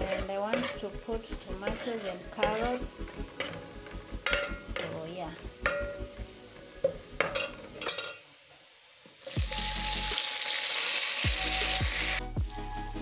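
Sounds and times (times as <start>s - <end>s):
vegetables sizzling in oil: 0.0s - 12.4s
metal spoon clicking on pot: 3.4s - 8.2s.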